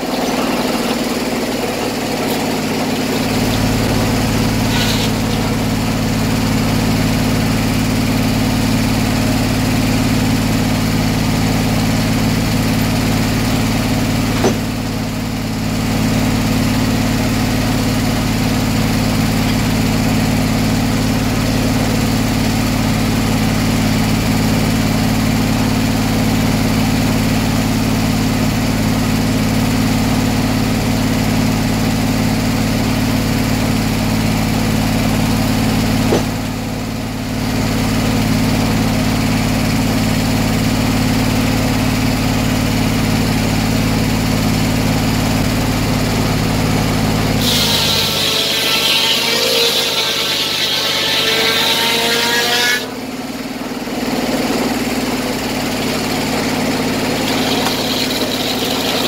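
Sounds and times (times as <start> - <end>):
circular saw engine droning: 0.0 - 9.1, 46.2 - 59.0.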